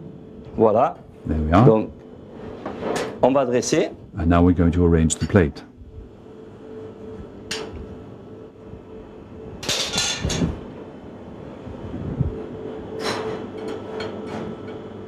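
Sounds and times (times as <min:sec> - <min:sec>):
low machine hum: 0:00.0 - 0:15.0.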